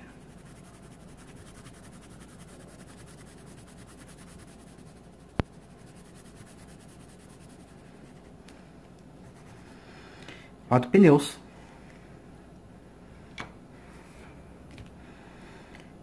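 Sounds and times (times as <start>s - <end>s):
coloured pencil scratching on paper: 0.0s - 8.4s, 9.2s - 9.8s.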